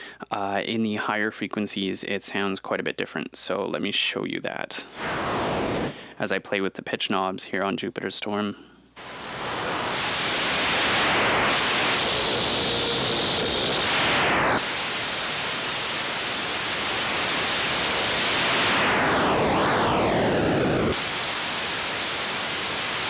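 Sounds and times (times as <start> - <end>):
sweeping noise oscillator hiss: 9.0 - 23.0.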